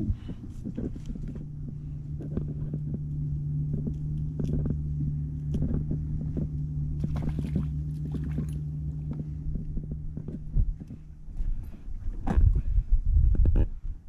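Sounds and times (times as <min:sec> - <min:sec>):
outboard motor idling: 0:00.0 - 0:12.8
fish splashing into water: 0:07.0 - 0:08.6.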